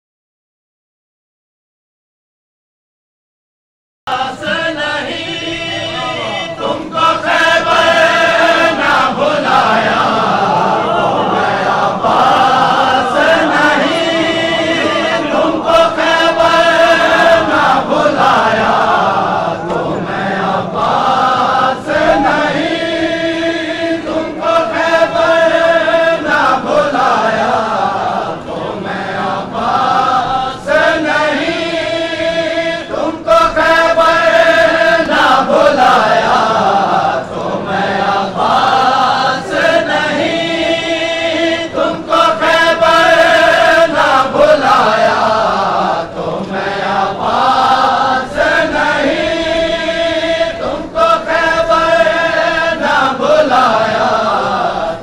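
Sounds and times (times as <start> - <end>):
crowd singing together: 4.1 - 55.0
men chanting a lament: 4.1 - 55.0.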